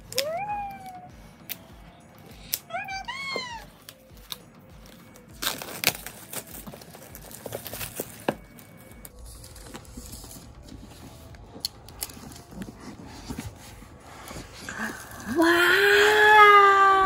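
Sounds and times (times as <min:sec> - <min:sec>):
plastic shrink-wrap crinkling: 0:03.8 - 0:15.6
cardboard box clicks and rustles: 0:05.4 - 0:10.8.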